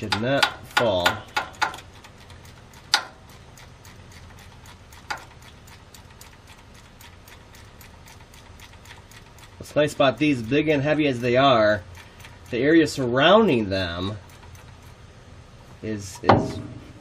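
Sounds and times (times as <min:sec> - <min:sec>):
hand ratchet clicking: 0:00.0 - 0:05.5, 0:08.2 - 0:15.0
sharp metallic clicks: 0:00.0 - 0:15.0.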